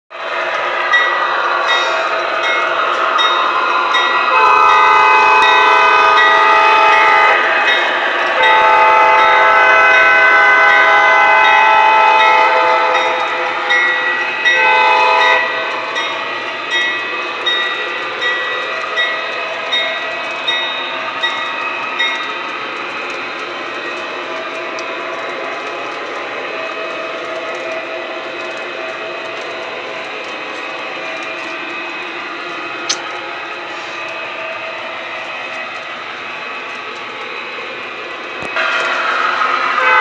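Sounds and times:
train running rumble: 0.1s - 40.0s
model train horn blasts: 4.3s - 7.4s, 8.4s - 13.2s, 14.5s - 15.7s, 39.8s - 40.0s
wheels clicking over rail joints: 12.2s - 34.2s.

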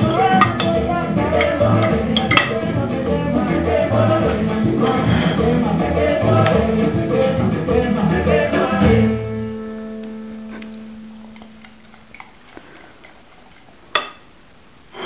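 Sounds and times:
plucked string chord: 9.0s - 12.0s.

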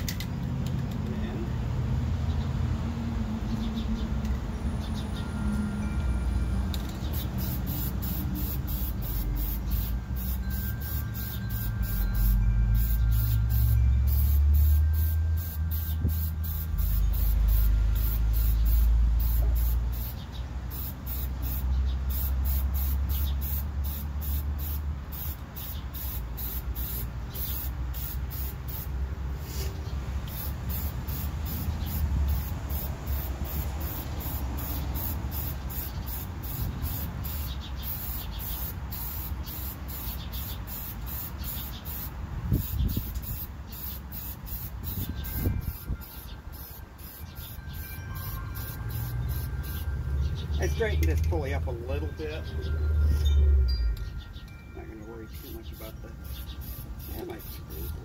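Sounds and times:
spray paint can hissing: 6.7s - 49.9s, 55.3s - 58.0s.

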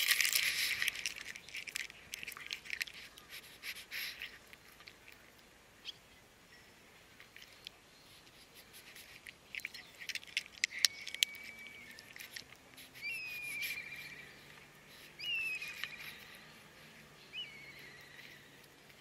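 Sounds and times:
cat crunching dry food: 0.0s - 5.5s, 8.6s - 17.0s
bird whistled calls: 10.8s - 12.2s, 13.0s - 14.6s, 15.2s - 16.6s, 17.2s - 18.6s.

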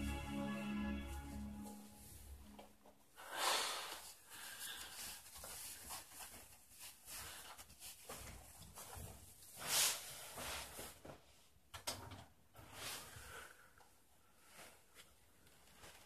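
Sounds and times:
music tones: 0.0s - 2.9s
sweater rustling: 0.0s - 11.3s.

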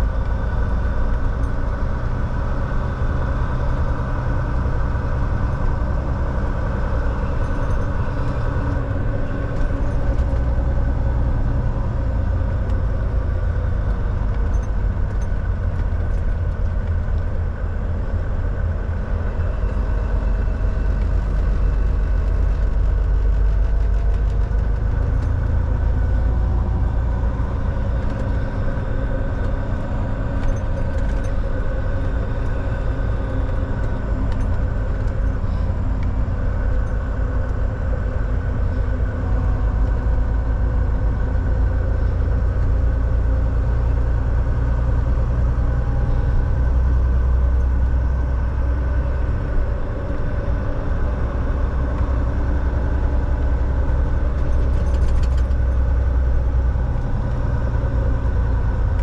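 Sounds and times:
diesel truck engine rumble: 0.0s - 59.0s
road noise: 0.0s - 59.0s.

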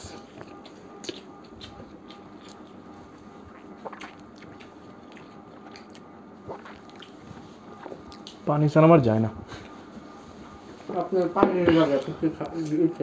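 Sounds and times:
chewing and mouth noises: 0.1s - 8.5s.

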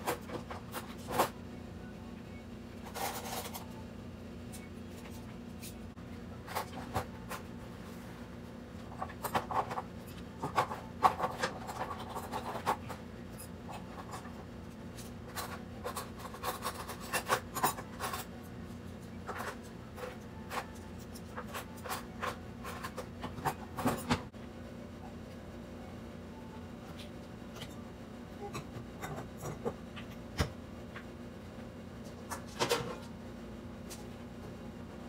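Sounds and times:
utensils and dishes clattering: 2.8s - 3.8s, 6.4s - 7.5s, 8.8s - 24.3s, 28.4s - 30.5s, 32.2s - 33.1s.

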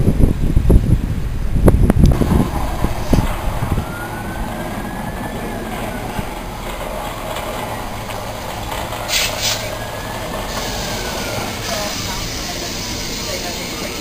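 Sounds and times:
train wheels rumbling on rails: 1.3s - 14.0s
faint train whine: 2.0s - 14.0s
high-pitched hissing bursts: 8.3s - 14.0s.

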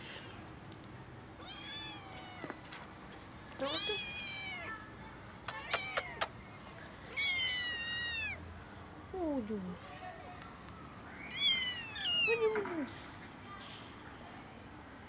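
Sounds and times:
kittens meowing: 1.4s - 2.5s, 5.5s - 6.3s, 7.1s - 8.4s, 11.3s - 12.6s.

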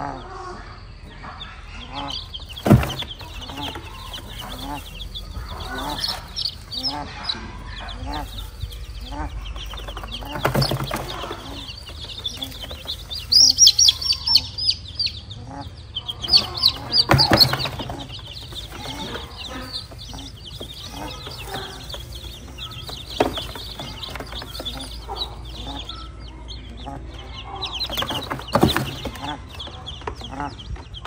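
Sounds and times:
chicks peeping: 0.0s - 31.0s
hen clucking: 0.0s - 31.0s
rustling in straw: 2.5s - 14.2s, 16.3s - 25.5s.

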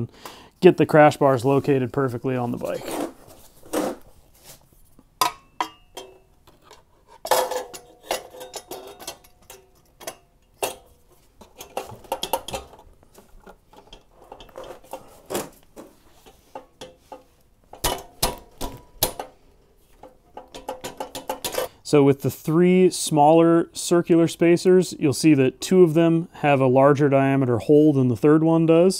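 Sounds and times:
metal clinks and knocks: 5.2s - 15.2s, 16.2s - 21.7s.

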